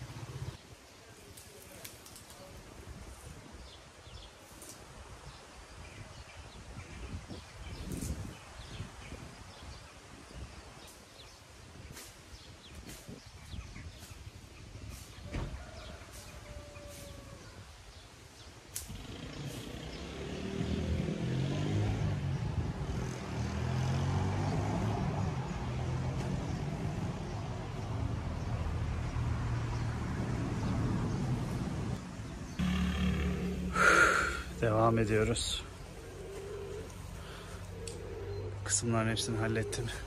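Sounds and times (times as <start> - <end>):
vehicle engine humming: 18.9 - 40.0.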